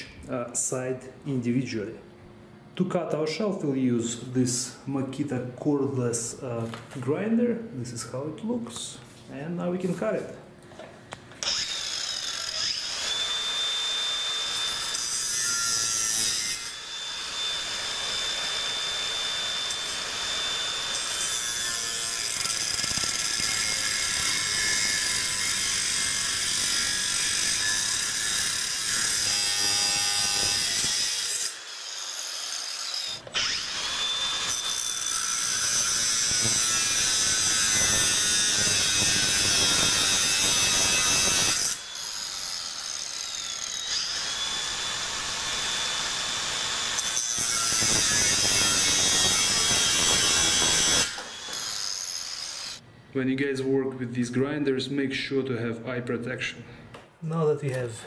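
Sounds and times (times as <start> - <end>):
angle grinder cutting wire: 11.4 - 52.8.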